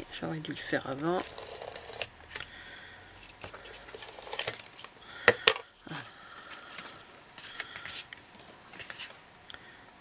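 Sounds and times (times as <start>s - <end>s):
paper rustling and scraping: 6.6s - 9.2s.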